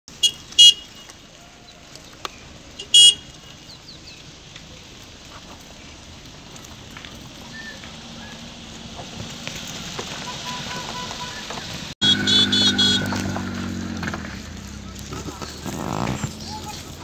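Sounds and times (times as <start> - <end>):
vehicle horn tooting: 0.1 - 1.2, 2.8 - 3.6, 10.3 - 13.8.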